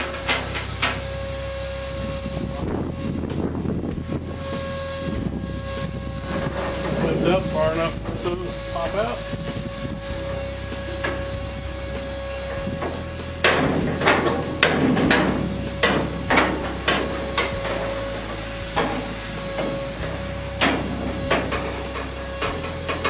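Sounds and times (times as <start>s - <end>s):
metallic knocks and clanks: 0.0s - 1.2s, 12.4s - 23.0s
footsteps on steel mesh: 10.9s - 23.0s.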